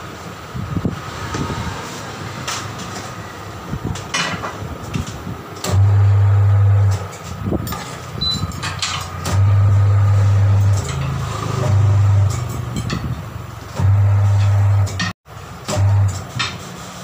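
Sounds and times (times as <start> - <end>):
turntable motor humming: 5.6 - 7.2, 9.1 - 12.7, 13.5 - 15.1.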